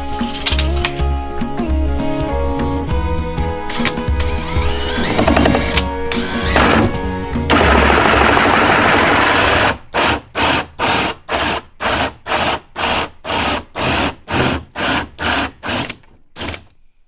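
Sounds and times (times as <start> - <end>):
cordless drill with hole saw: 4.0 - 16.7.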